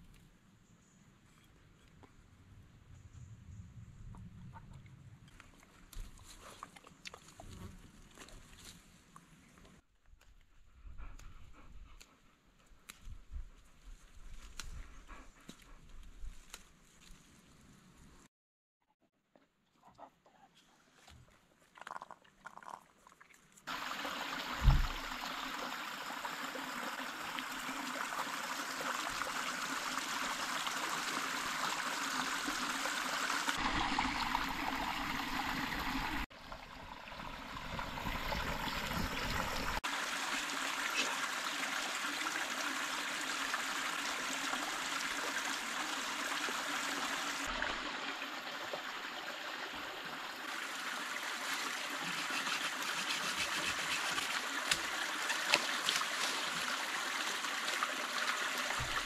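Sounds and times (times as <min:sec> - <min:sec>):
stream babbling over stones: 0:23.7 - 0:59.0
thump: 0:24.6 - 0:25.0.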